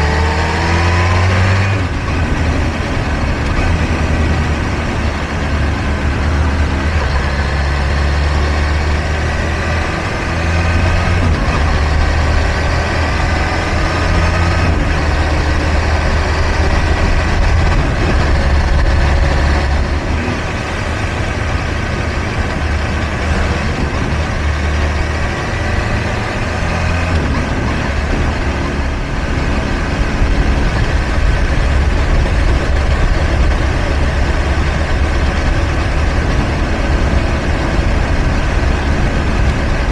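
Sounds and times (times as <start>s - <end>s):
motorcycle engine cruising: 0.0s - 39.9s
wind rush: 9.3s - 39.9s.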